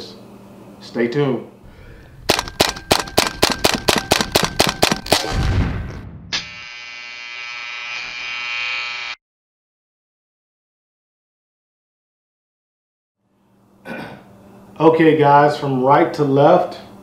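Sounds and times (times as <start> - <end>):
rapid gunshot-like cracks: 2.2 - 6.1
low boom: 4.4 - 6.4
buzzing electronic tone: 6.4 - 9.2.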